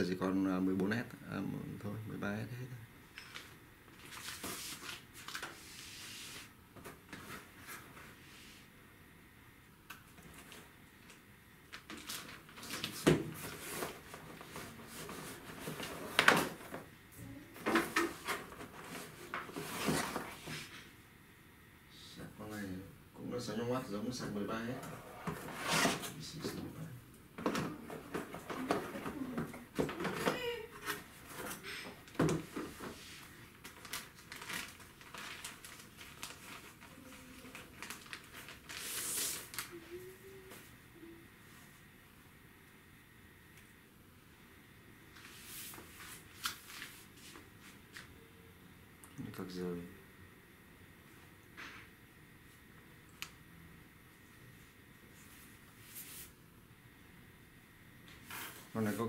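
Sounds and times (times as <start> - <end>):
plastic wrapping rustling: 3.2 - 6.5, 10.3 - 16.9, 30.0 - 40.0, 45.7 - 47.4
plastic packaging crinkling: 11.7 - 13.0, 33.5 - 39.8.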